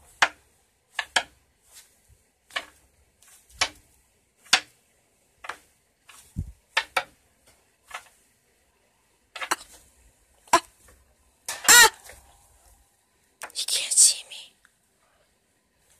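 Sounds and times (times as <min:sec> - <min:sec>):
taps and rustles of handling: 0:00.0 - 0:04.8, 0:05.4 - 0:08.2.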